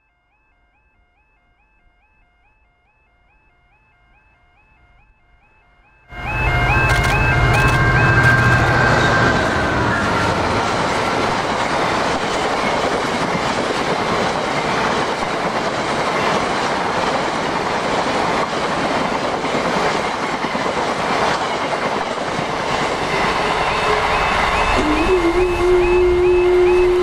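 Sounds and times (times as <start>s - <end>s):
freight train wheels on rails: 6.1s - 27.0s
wheels clickety-clack: 6.6s - 9.5s, 10.1s - 25.1s.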